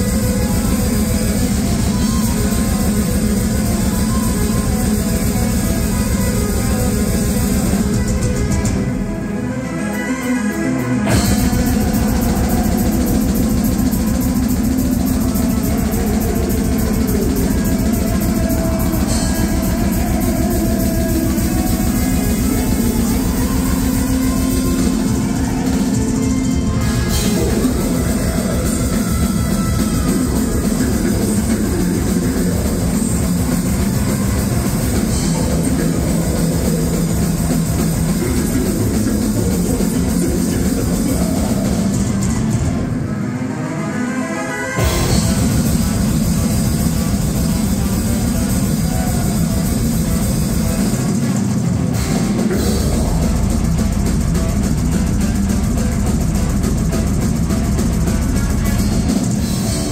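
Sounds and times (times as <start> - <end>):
rapid kick-drum hits: 0.0 - 8.9, 11.1 - 42.9, 44.8 - 59.9
drum kit: 0.0 - 43.2, 44.8 - 59.9
distorted electric guitars: 0.0 - 59.9
vocalist singing: 9.8 - 43.2, 51.9 - 54.2.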